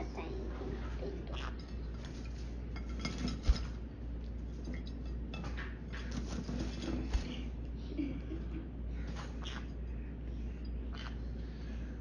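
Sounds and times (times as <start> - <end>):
claws and beak clinking on plate: 1.3 - 3.8.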